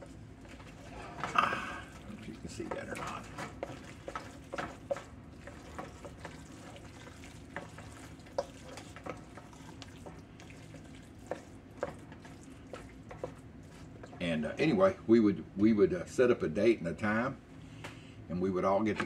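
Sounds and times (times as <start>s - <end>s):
spoon stirring in a metal pot: 0.0s - 14.2s.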